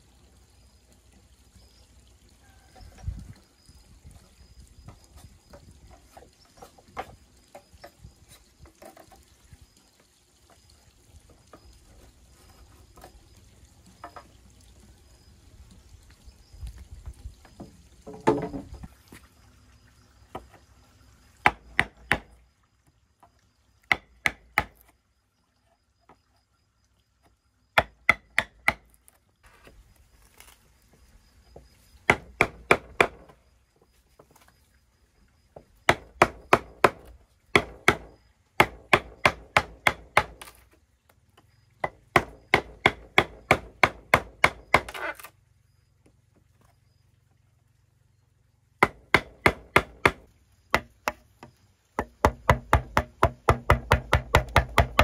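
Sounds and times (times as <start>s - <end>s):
blade chopping bamboo: 32.1s - 33.3s, 35.9s - 40.7s, 41.8s - 45.3s, 48.8s - 51.3s, 52.0s - 55.0s.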